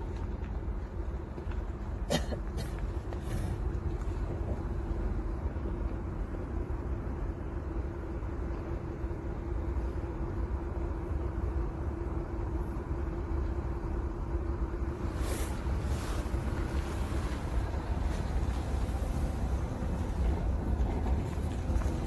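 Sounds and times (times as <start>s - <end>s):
mid-pitched hum: 0.0s - 22.0s
wind buffeting microphone: 13.7s - 22.0s.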